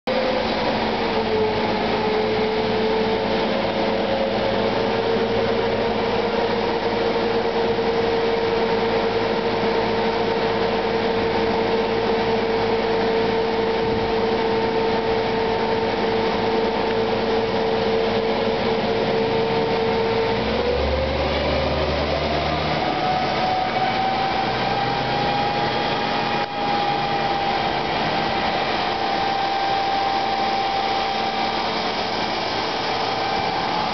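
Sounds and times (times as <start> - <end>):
steady mechanical whine: 0.1 - 33.9.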